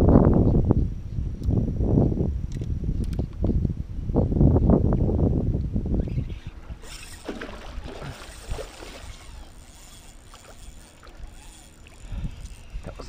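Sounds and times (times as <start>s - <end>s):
water sloshing against kayak hull: 6.4s - 13.0s.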